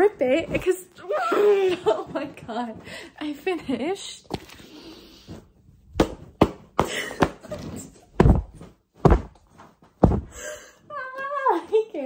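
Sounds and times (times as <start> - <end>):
dull thumps on a book: 8.2 - 10.4.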